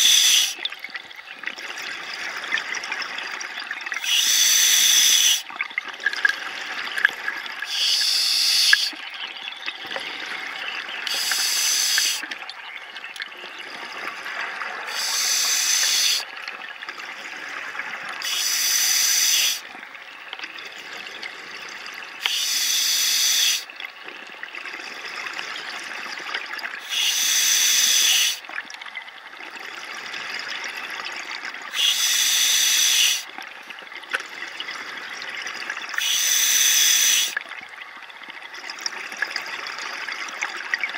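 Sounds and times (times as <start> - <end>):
regulator breath hiss: 0.0 - 0.6, 4.0 - 5.4, 7.7 - 9.0, 11.1 - 12.2, 14.9 - 16.2, 18.2 - 19.6, 22.2 - 23.7, 26.8 - 28.4, 31.7 - 33.3, 36.0 - 37.4.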